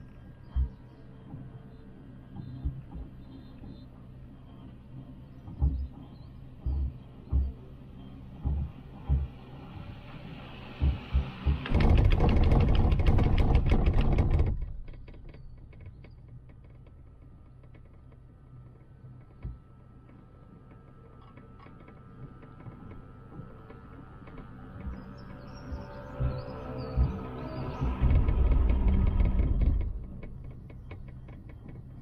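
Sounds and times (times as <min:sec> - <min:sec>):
faint steady hum: 0:00.0 - 0:32.0
rapid clattering and rumbling: 0:08.3 - 0:32.0.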